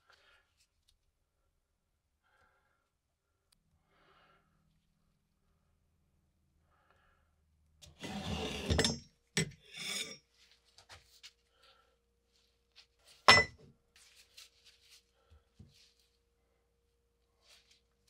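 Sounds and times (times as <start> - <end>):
metal parts scraping on wood: 7.9 - 10.2.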